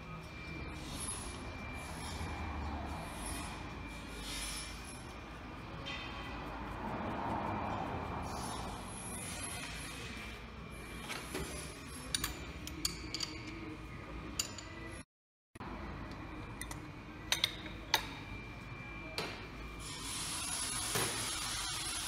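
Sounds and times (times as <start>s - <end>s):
metallic clicks of steel tools: 12.1s - 13.7s, 14.3s - 14.8s.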